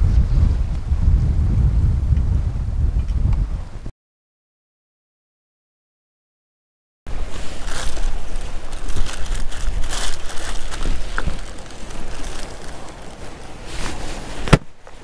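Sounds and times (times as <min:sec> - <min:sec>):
wind rumbling on microphone: 0:00.0 - 0:03.9, 0:07.1 - 0:15.0
rustling and clicks of bait packs: 0:07.2 - 0:15.0.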